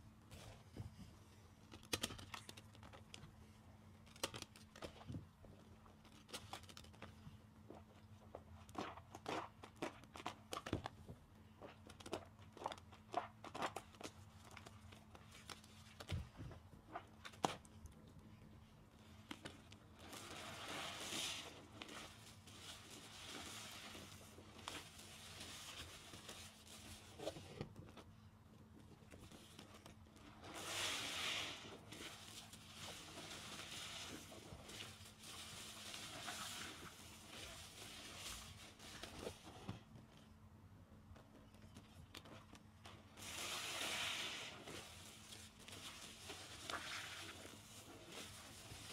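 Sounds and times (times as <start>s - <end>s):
soapy sponge squelching: 19.8s - 27.2s, 30.2s - 39.1s, 43.1s - 48.9s.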